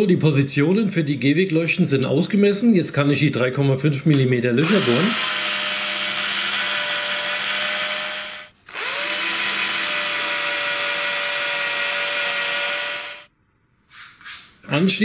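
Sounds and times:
electric drill whining: 0:04.6 - 0:13.3.

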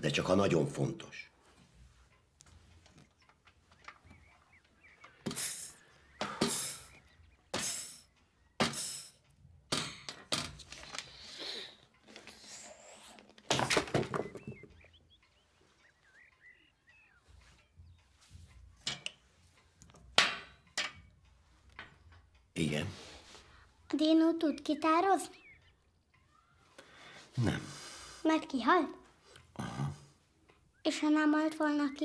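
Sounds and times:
knocks and clatters at a table: 0:09.7 - 0:11.0, 0:18.3 - 0:21.1.

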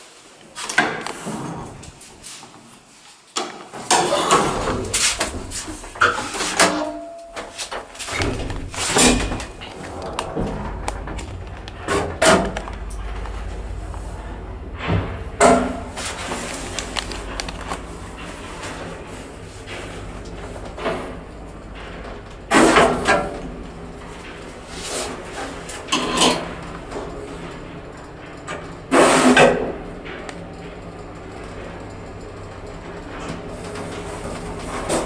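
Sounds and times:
knocks and clatters: 0:03.4 - 0:27.5
elevator clunks: 0:03.8 - 0:35.0
elevator doors banging shut: 0:03.8 - 0:35.0
elevator running rumble: 0:03.9 - 0:35.0.

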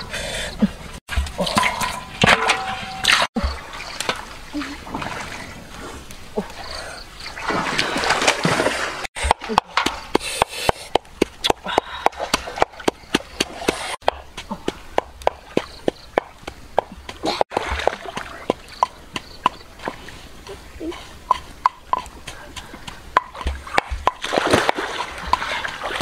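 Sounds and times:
splashing and scraping: 0:01.0 - 0:26.0
pestle pounding in wooden mortar: 0:21.3 - 0:25.5.

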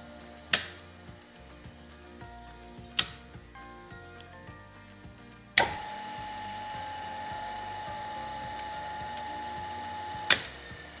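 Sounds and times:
contactor clicking: 0:00.4 - 0:00.9, 0:05.6 - 0:11.0
electric motor whining and humming: 0:05.6 - 0:11.0.

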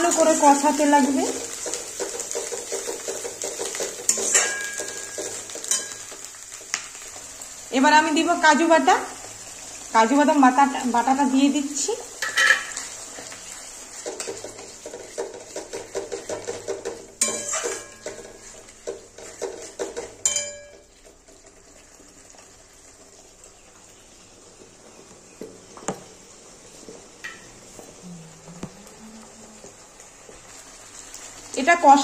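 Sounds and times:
paste sizzling: 0:00.0 - 0:32.0
spatula scraping metal wok: 0:01.3 - 0:06.2, 0:12.2 - 0:20.3
spatula clinking against pan: 0:04.1 - 0:06.2, 0:16.3 - 0:18.3, 0:19.4 - 0:20.8.

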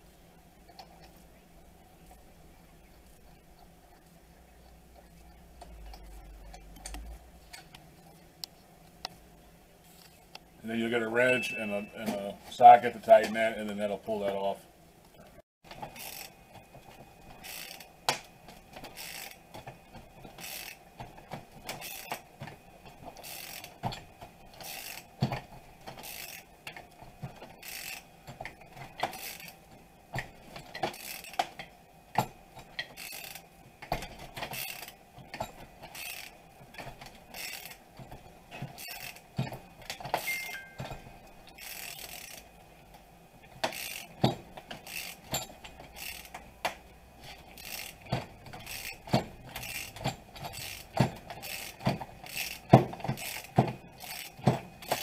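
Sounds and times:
ratchet wrench clicking: 0:17.4 - 0:17.9, 0:18.9 - 0:19.4, 0:20.4 - 0:20.8, 0:23.2 - 0:23.7, 0:24.6 - 0:25.1, 0:26.0 - 0:26.5, 0:27.6 - 0:28.0, 0:30.9 - 0:31.4, 0:32.8 - 0:33.4, 0:34.5 - 0:34.9, 0:35.9 - 0:36.3, 0:37.3 - 0:37.8, 0:41.6 - 0:42.4, 0:43.6 - 0:44.2, 0:44.8 - 0:46.4, 0:47.5 - 0:48.0, 0:48.6 - 0:55.0
metal tools clinking: 0:40.2 - 0:41.0.

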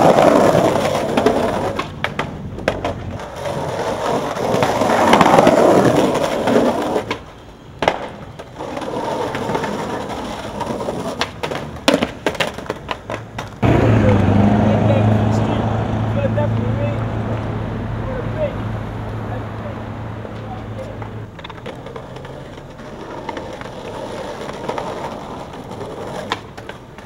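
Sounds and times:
skateboard clacking on pavement: 0:00.0 - 0:13.7, 0:19.6 - 0:27.0
skateboard wheels rolling on concrete: 0:00.0 - 0:27.0.

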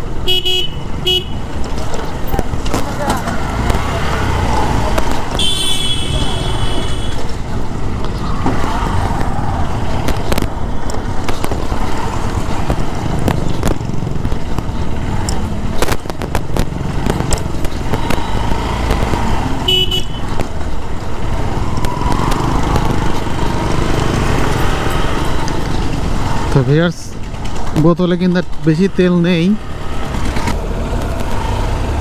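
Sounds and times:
motorcycle horn toot: 0:00.2 - 0:01.4, 0:05.4 - 0:07.2, 0:19.6 - 0:20.3
knocks and rattles from bumps: 0:21.8 - 0:28.6.

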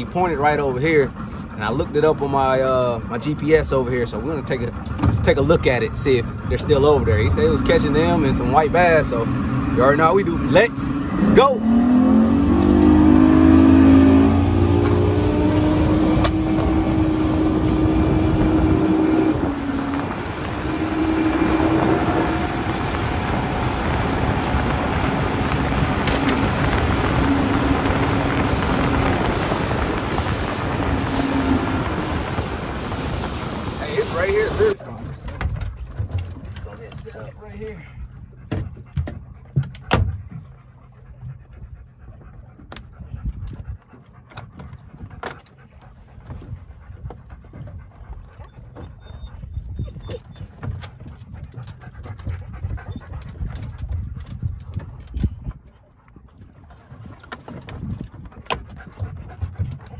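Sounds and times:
rushing water: 0:00.0 - 0:35.0
wind rushing over microphone: 0:00.0 - 0:35.8, 0:41.1 - 0:45.2, 0:45.8 - 0:59.9
boat engine hum: 0:00.0 - 0:59.9
trolling motor clicks and knocks: 0:01.0 - 0:02.4, 0:04.5 - 0:07.0, 0:14.6 - 0:17.0, 0:34.8 - 0:37.4, 0:38.2 - 0:49.0, 0:50.0 - 0:59.9
dogs panting: 0:37.4 - 0:59.9.

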